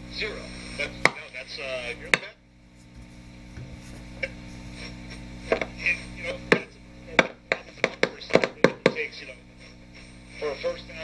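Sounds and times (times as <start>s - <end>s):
mains hum from speaker: 0.0s - 11.0s
faint radio broadcast audio: 0.1s - 2.5s, 3.6s - 11.0s.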